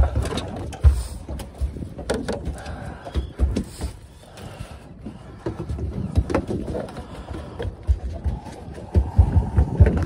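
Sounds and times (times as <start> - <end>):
knocks and clicks of gear handled: 0.0 - 4.5
wind rumble on microphone: 7.9 - 10.0.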